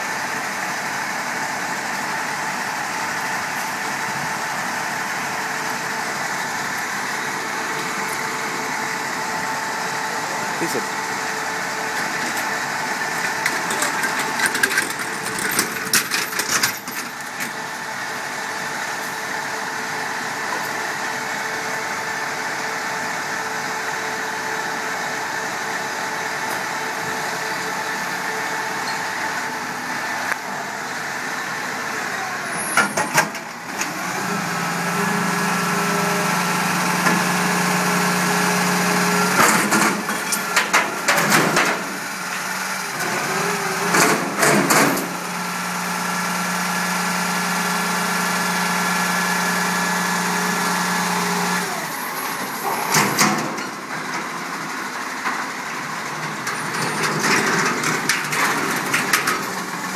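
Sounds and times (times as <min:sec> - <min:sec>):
diesel engine idling: 0:00.0 - 0:59.9
metal clanks and rattles: 0:13.2 - 0:17.5, 0:39.4 - 0:41.9.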